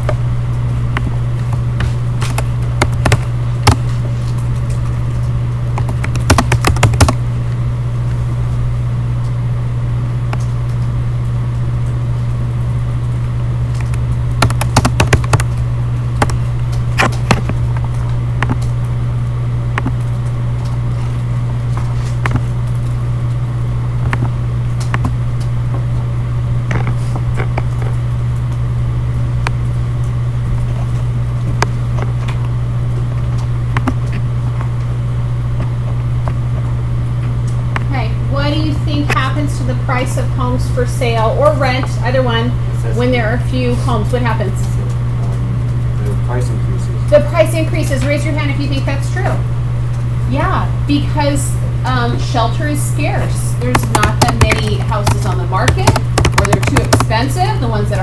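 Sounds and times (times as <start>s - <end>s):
steady low hum: 0.0s - 58.0s
keyboard key clicks: 53.7s - 57.1s.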